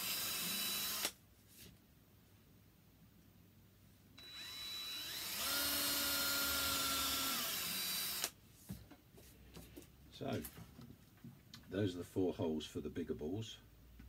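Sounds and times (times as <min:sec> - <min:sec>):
cordless drill whining: 0:00.0 - 0:01.2, 0:04.2 - 0:08.4.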